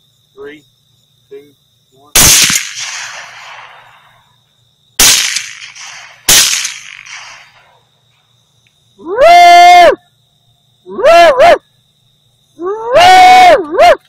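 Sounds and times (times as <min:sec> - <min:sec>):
rifle shots echoing: 0:02.2 - 0:04.2, 0:05.0 - 0:07.8.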